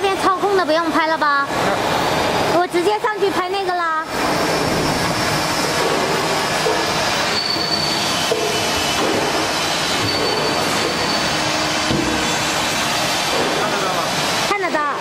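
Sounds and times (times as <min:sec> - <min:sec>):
machinery rushing drone: 0:04.0 - 0:15.0
faint high squeals: 0:07.2 - 0:08.2, 0:10.0 - 0:11.6.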